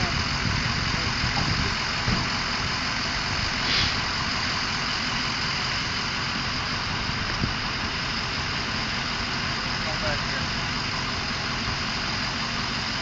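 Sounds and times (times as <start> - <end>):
car engine idling: 0.0 - 13.0
brief hiss: 3.6 - 4.1.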